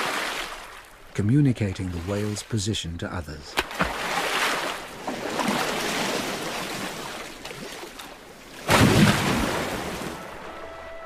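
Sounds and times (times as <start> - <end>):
water churning and washing: 0.0 - 10.7
whale flipper slapping water: 3.5 - 10.2.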